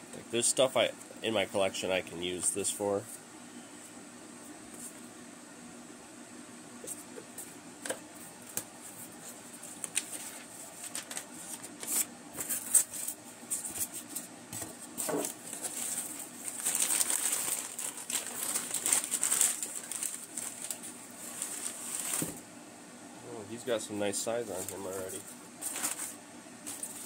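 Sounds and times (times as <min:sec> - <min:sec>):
packing paper rustling: 0:09.2 - 0:22.4, 0:24.5 - 0:27.0.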